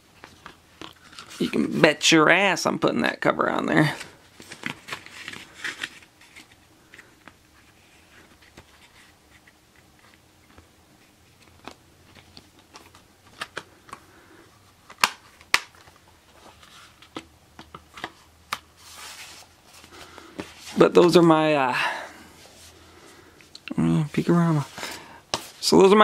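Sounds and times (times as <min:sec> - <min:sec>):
plastic case and paper rustling: 0:00.2 - 0:01.7, 0:03.8 - 0:14.1.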